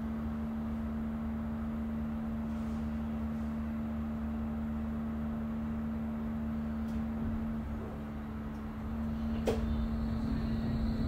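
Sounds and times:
tram electrical hum: 0.0 - 11.0
low rumble: 7.0 - 11.0.

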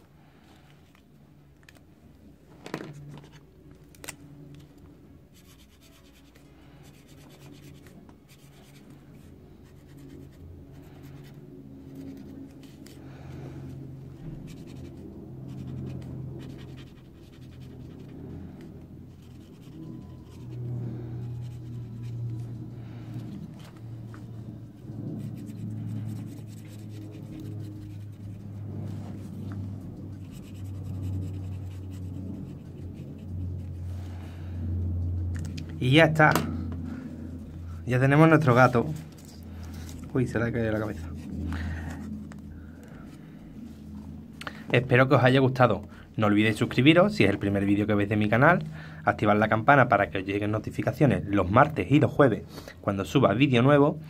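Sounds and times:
pen scratching on paper: 5.3 - 13.0, 14.2 - 22.5, 24.9 - 33.8.

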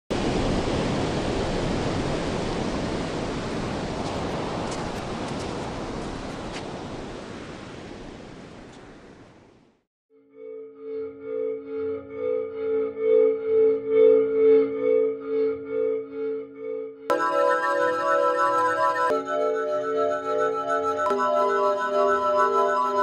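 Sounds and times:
sea water rushing: 0.1 - 8.7.

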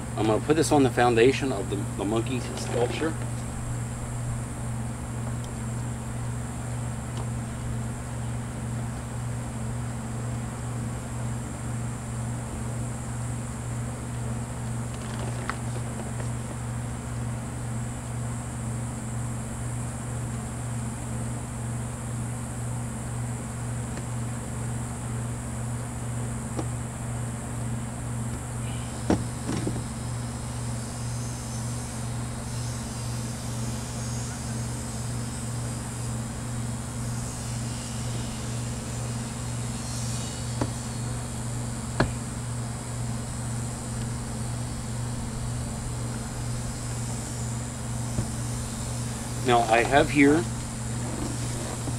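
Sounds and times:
low pulsing machine hum: 0.0 - 51.9
objects knocking on a table: 29.1 - 29.8.

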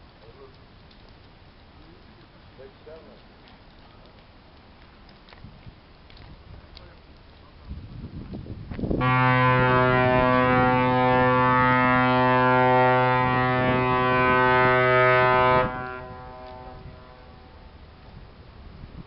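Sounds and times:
ship's horn long low blast: 9.0 - 17.6.

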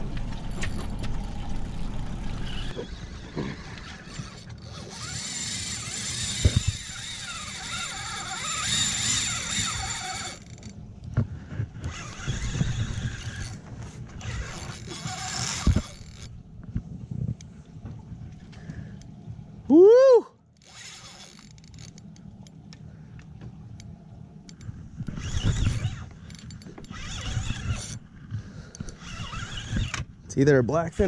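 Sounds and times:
fishing reel drag squealing: 2.1 - 10.7, 11.8 - 16.3, 20.6 - 21.9, 25.1 - 28.0, 28.9 - 30.1.

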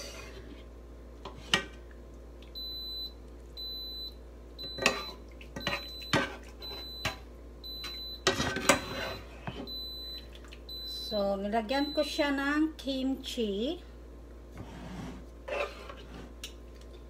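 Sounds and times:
metal utensils scraping a pan: 15.4 - 16.2.

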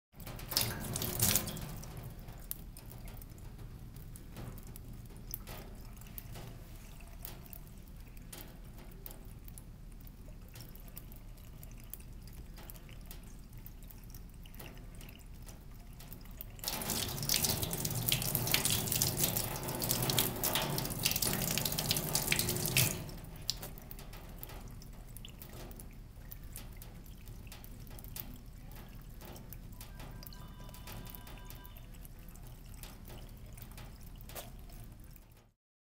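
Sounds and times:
faucet running into sink: 0.3 - 2.6, 15.8 - 25.8, 26.6 - 35.4.

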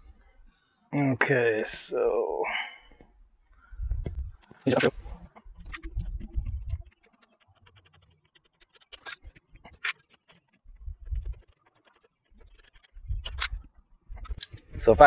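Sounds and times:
light clicks and scrapes: 4.0 - 15.0.

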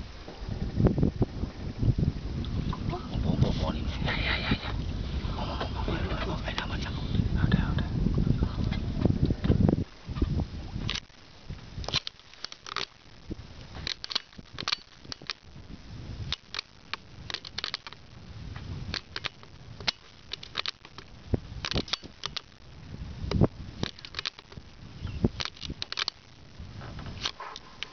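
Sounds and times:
wind buffeting microphone: 0.0 - 12.1, 13.0 - 27.8
crackling clicks: 10.2 - 27.9.

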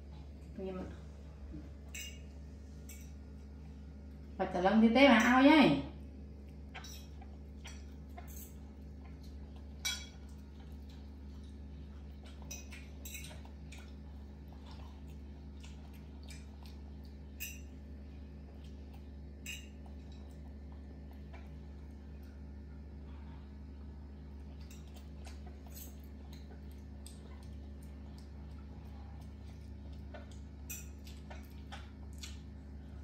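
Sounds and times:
steady low hum: 0.0 - 33.0
cutlery clinking on plates: 1.9 - 2.3, 9.8 - 10.2, 12.5 - 13.4, 19.4 - 19.7.

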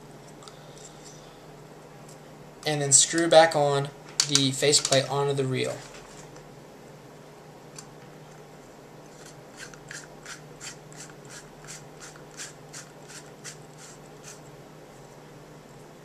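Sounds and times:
reel faceplate threads scraping: 9.1 - 14.4.

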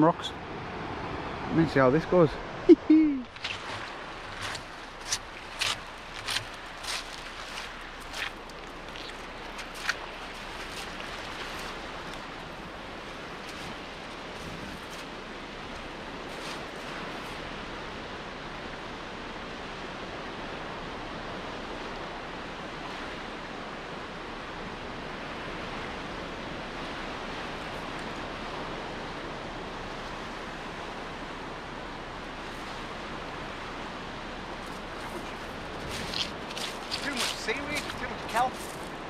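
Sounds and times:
sea surf on rocks: 0.0 - 39.0.

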